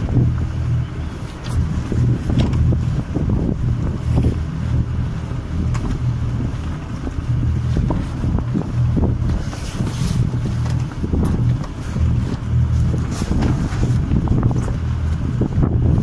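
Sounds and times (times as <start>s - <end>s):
wind buffeting microphone: 0.0s - 16.0s
canvas and rope rustling: 7.6s - 16.0s.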